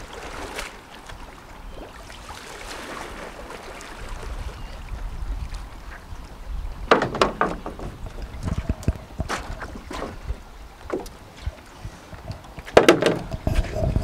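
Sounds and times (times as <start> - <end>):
wind rumbling on microphone: 0.0 - 14.0
kayak knocking against pontoon: 6.9 - 11.2, 12.6 - 13.6.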